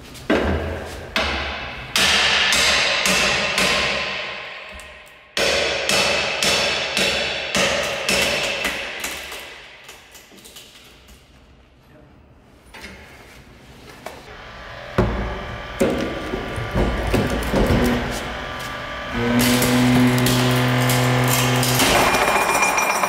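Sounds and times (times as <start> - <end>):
hammer striking metal tool: 1.2 - 10.2, 19.4 - 23.0.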